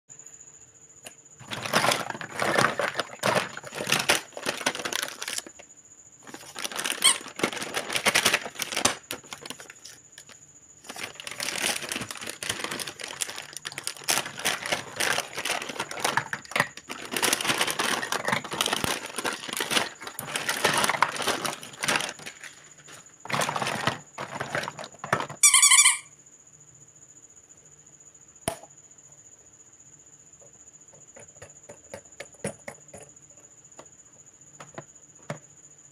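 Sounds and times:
plastic toys clattering: 1.4s - 5.6s, 6.2s - 26.0s.

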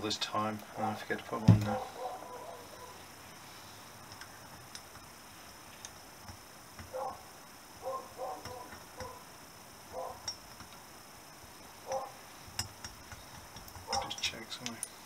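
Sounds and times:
light metallic clicks and taps: 4.0s - 5.1s, 5.7s - 7.0s, 8.4s - 9.2s, 10.2s - 10.9s, 11.9s - 15.0s.

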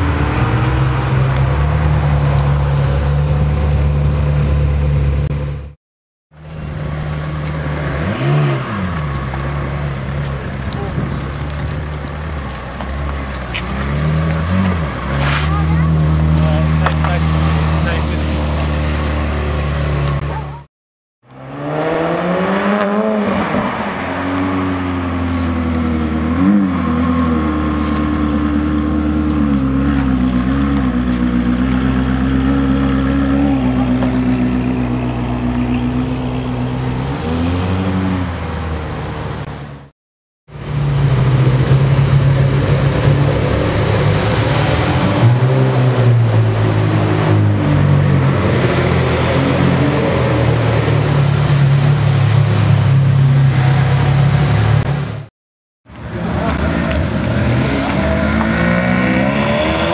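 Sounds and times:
sports car engine revving: 21.4s - 38.6s, 56.1s - 59.9s.

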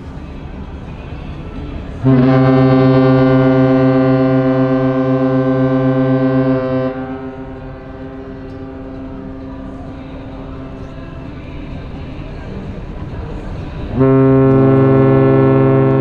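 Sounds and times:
ship's horn blast: 1.8s - 16.0s.

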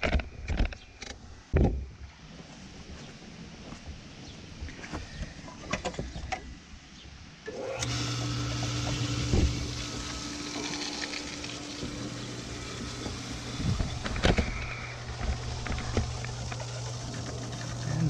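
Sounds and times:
pool pump motor humming: 7.4s - 18.0s.

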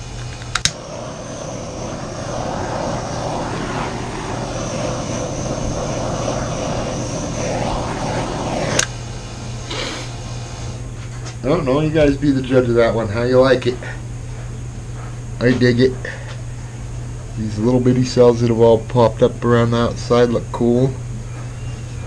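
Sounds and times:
appliance rushing noise: 0.0s - 10.8s.

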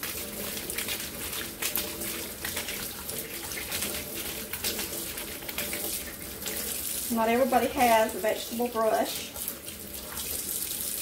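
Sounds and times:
faucet running into metal sink: 0.0s - 11.0s
water splashing off corn: 0.0s - 11.0s.

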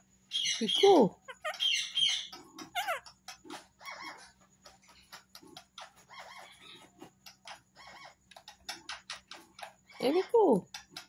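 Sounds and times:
bird chirps: 0.3s - 6.8s
parakeet beak clicking and scraping: 1.4s - 11.0s.

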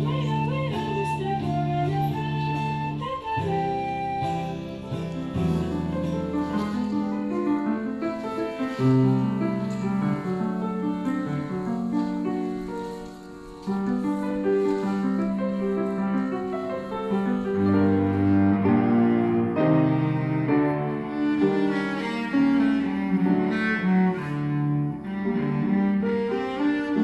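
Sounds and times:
cello playing long notes: 0.0s - 27.0s
piano: 0.0s - 27.0s.

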